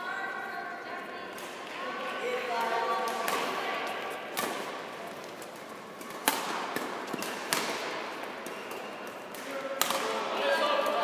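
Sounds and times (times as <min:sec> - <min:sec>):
murmur of hall: 0:00.0 - 0:11.0
badminton racket hitting shuttlecock: 0:02.6 - 0:04.9, 0:06.0 - 0:10.2.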